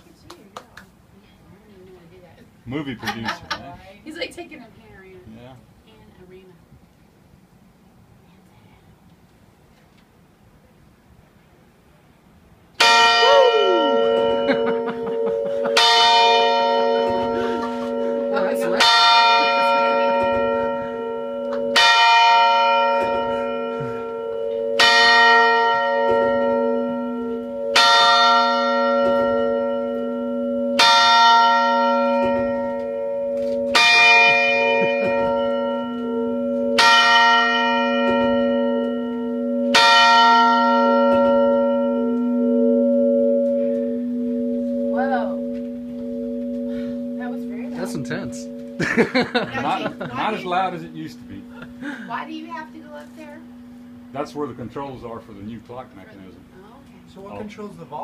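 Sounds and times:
clock bell tolling: 0:12.8 - 0:55.6.

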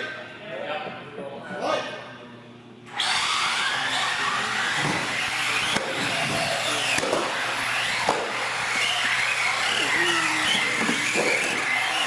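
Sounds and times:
toy car motors whining: 0:02.9 - 0:12.0.

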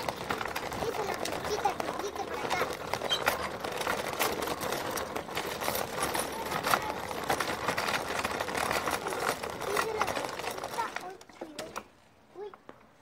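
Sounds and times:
go-kart wheels rattling on concrete: 0:00.0 - 0:12.7.

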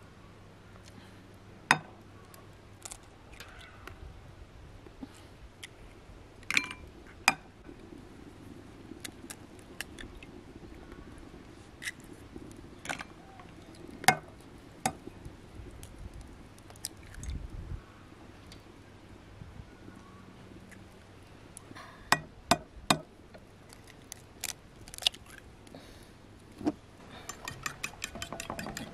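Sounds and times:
eggs cracking on ceramic bowl: 0:27.3 - 0:28.9.

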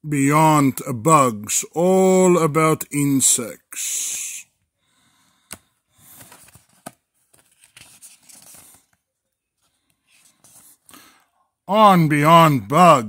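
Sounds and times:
book pages rustling: 0:05.4 - 0:10.9.

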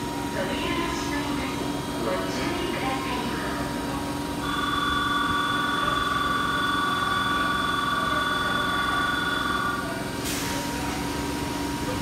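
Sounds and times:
electric train low hum: 0:00.0 - 0:12.0
platform departure bell ringing: 0:02.4 - 0:10.2.

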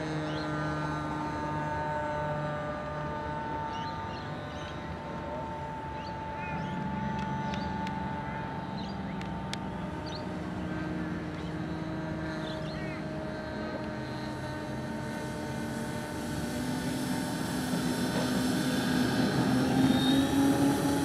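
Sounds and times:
model plane motors humming: 0:00.0 - 0:21.0
propeller noise: 0:00.0 - 0:21.0.

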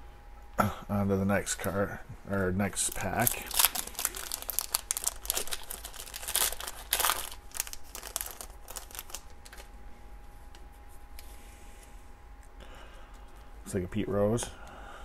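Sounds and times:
foil wrapper tearing and crinkling: 0:02.8 - 0:09.7.

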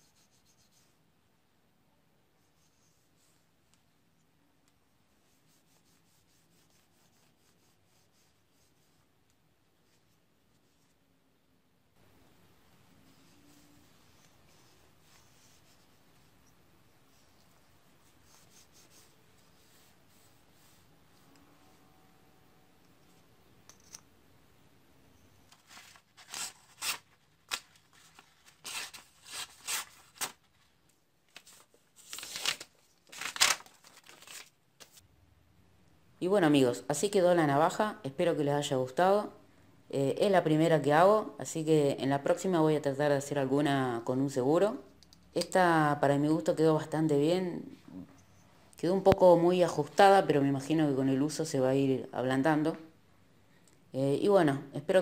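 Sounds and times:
cloth rubbing wooden handle: 0:13.0 - 0:21.8.

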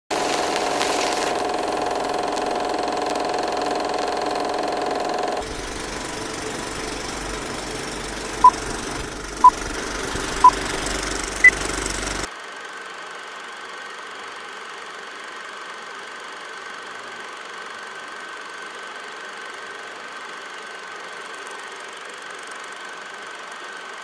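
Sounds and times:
film projector clattering: 0:00.1 - 0:12.3.

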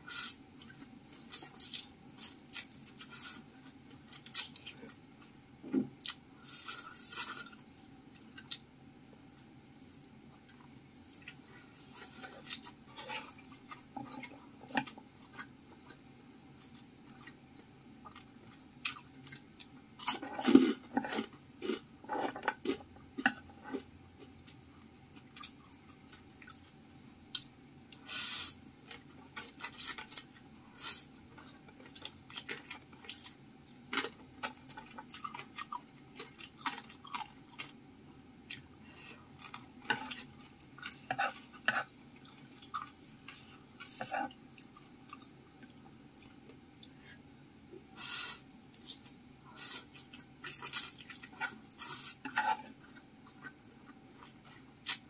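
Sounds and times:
chewing noodles: 0:48.7 - 0:55.0.

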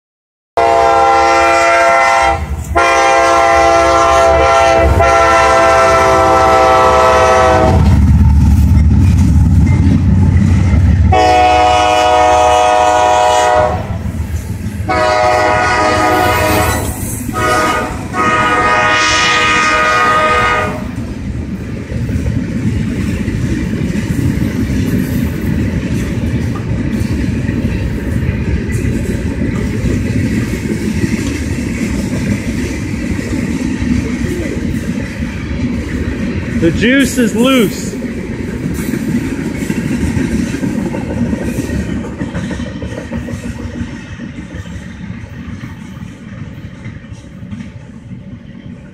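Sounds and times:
locomotive air horn blasts: 0:00.6 - 0:07.9, 0:11.1 - 0:14.0, 0:14.9 - 0:20.9
locomotive engines rumbling: 0:00.6 - 0:48.9
train wheels rumbling and clacking: 0:00.6 - 0:48.9.

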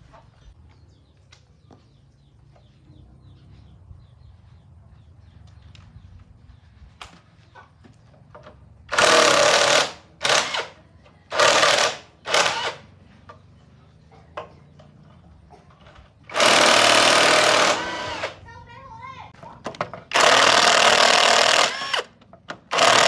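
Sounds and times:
power tool bursts: 0:08.9 - 0:12.9, 0:16.3 - 0:18.4, 0:20.1 - 0:22.1, 0:22.7 - 0:23.0.

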